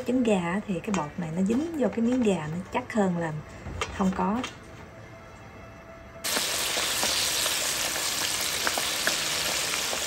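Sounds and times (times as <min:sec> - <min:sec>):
chicken deep-frying in oil: 0:06.2 - 0:10.0
oil pops and crackles: 0:06.3 - 0:10.0.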